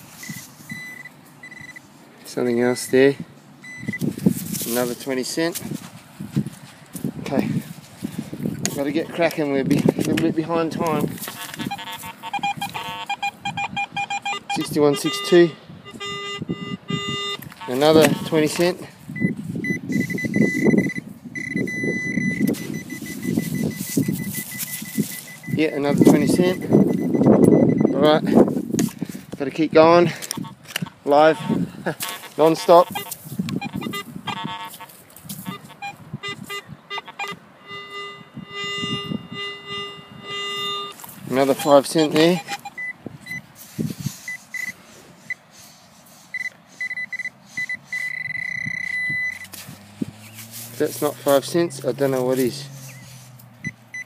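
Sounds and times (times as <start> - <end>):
metal detector tone: 0.0 - 1.9, 2.5 - 5.1, 10.7 - 28.2, 30.2 - 43.5, 44.1 - 45.4, 46.3 - 54.0
hand digging in sand: 49.3 - 53.5.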